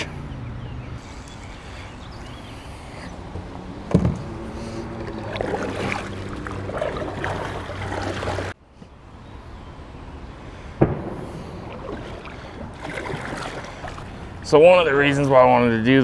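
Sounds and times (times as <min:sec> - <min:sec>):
low hum: 0:00.0 - 0:14.6
paddle splashing water: 0:04.0 - 0:08.6, 0:11.2 - 0:14.5.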